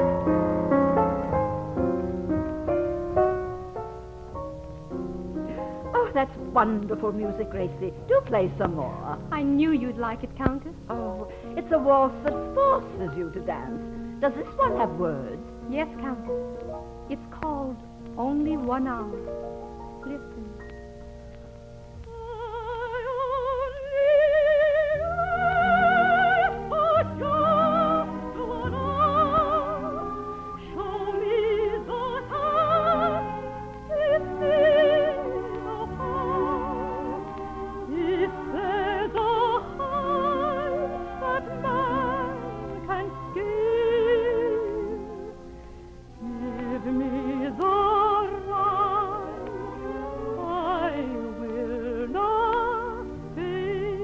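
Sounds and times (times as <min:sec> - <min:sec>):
orchestra: 0:00.0 - 0:54.0
operatic soprano singing: 0:05.9 - 0:16.2, 0:22.0 - 0:54.0.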